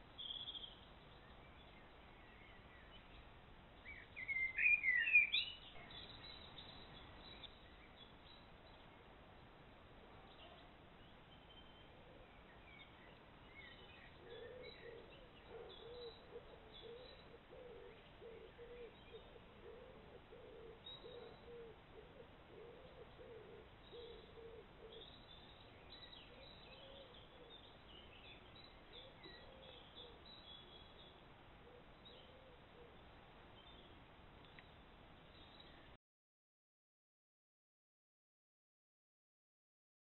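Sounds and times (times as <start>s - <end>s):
small birds chirping: 0.0s - 36.0s
pigeon cooing: 14.2s - 25.2s, 26.3s - 27.7s, 28.9s - 30.2s, 31.6s - 33.0s.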